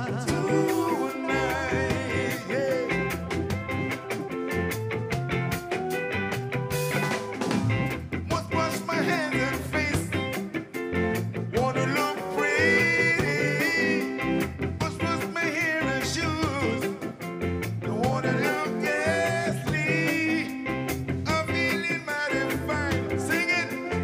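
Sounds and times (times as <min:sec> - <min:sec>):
keyboard held wavering notes: 0:00.0 - 0:09.6
live ska band playing: 0:00.0 - 0:24.0.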